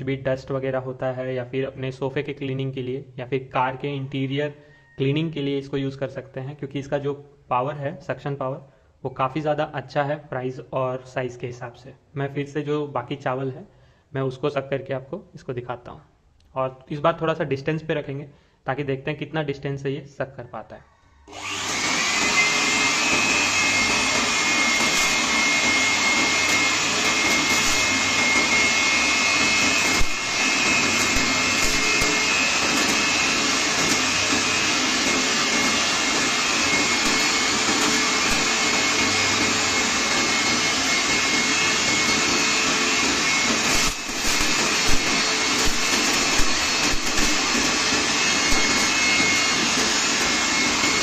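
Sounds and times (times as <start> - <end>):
electric blower motor whine: 21.3 - 51.0.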